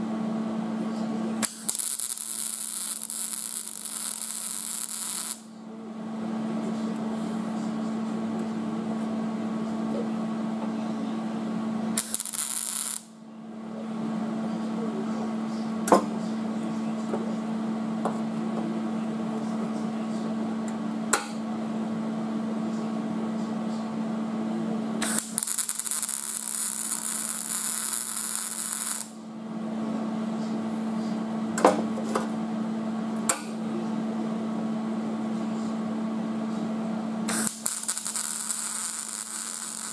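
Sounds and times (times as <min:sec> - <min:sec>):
welder steady hum: 0:00.0 - 0:39.9
welding arc crackle: 0:01.4 - 0:05.5, 0:12.0 - 0:13.1, 0:25.0 - 0:29.2, 0:37.3 - 0:39.9.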